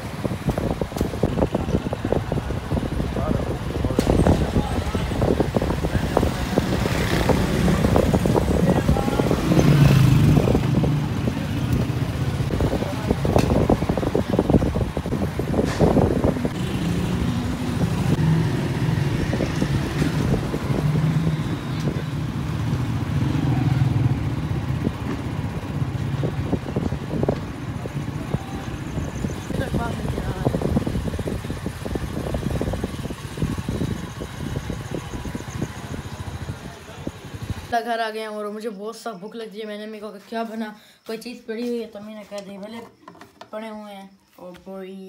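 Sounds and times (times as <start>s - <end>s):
vehicle engines passing: 0.0s - 37.8s
scattered knocks and rustles: 42.4s - 43.6s.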